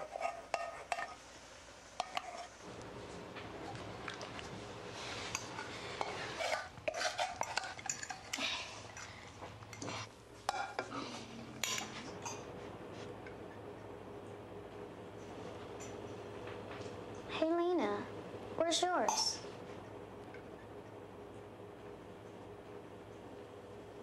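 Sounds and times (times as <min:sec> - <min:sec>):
steady low hum: 0:00.0 - 0:24.0
saucepan spoon and plates clattering: 0:05.3 - 0:12.5.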